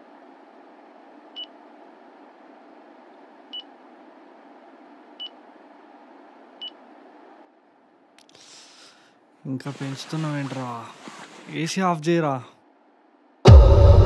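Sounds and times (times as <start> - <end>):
air conditioner beeps: 1.3 - 1.6, 3.5 - 3.7, 5.1 - 5.4, 6.6 - 6.8
low hum: 12.6 - 14.0.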